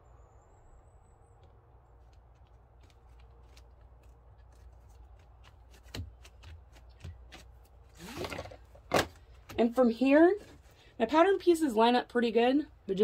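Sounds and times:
vinyl rustling and crinkling: 0:02.0 - 0:10.9.

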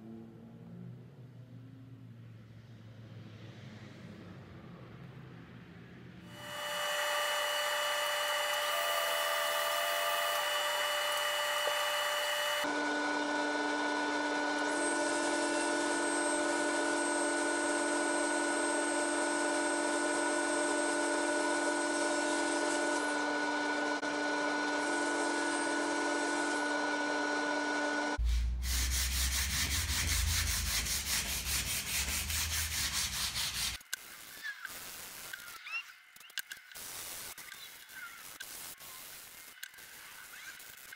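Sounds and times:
table saw whine: 0:06.3 - 0:33.8
low rumble with rattling: 0:28.2 - 0:33.3.

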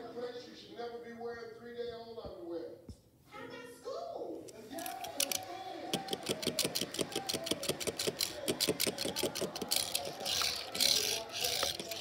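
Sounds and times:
toy car clicking on stone: 0:04.6 - 0:12.0.

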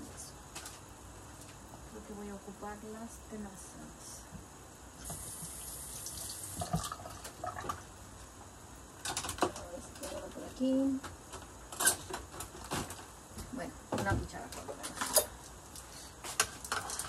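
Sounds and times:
faint watery hiss: 0:05.0 - 0:07.7.

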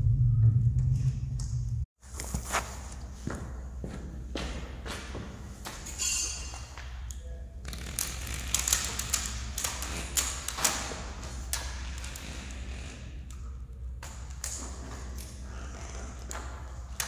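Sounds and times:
scrape and ring: 0:06.0 - 0:06.7.

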